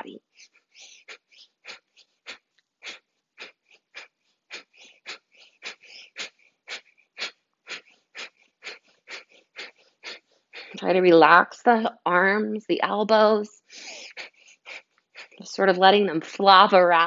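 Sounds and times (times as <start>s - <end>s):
forceful nasal exhalations: 0.2s - 10.8s.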